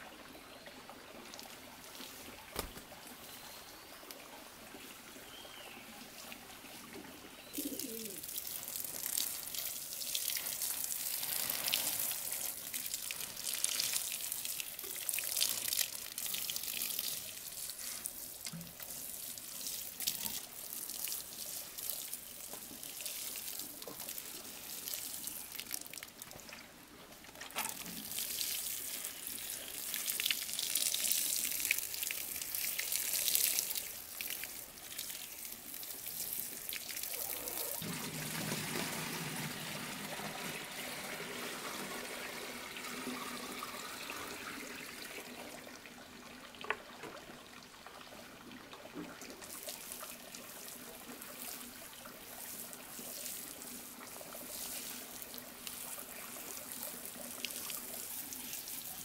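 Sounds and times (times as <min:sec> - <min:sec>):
watering can spraying water: 0:08.3 - 0:12.8, 0:52.2 - 0:56.1.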